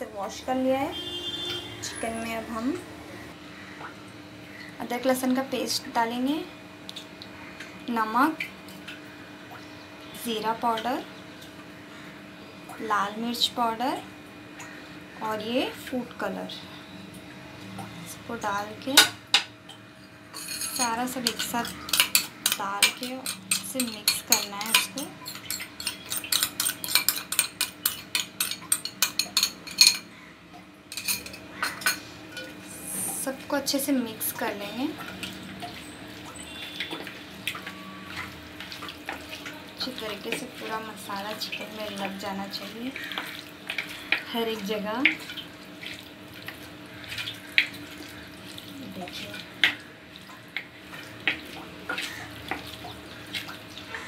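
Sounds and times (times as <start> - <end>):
container clinking on steel bowl: 20.3 - 30.1, 30.9 - 32.5.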